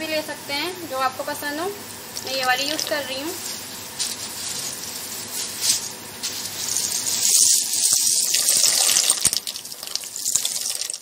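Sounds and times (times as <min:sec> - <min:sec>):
water boiling and bubbling: 0:05.9 - 0:11.0.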